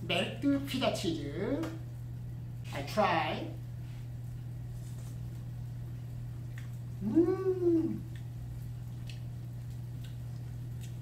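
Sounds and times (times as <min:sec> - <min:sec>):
man humming mmm: 0:07.0 - 0:08.2.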